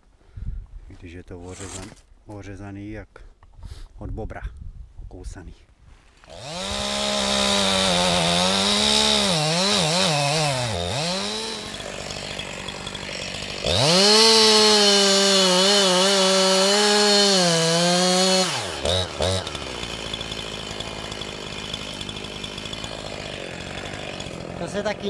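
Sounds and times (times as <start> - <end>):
chainsaw cutting wood: 6.2 - 25.0.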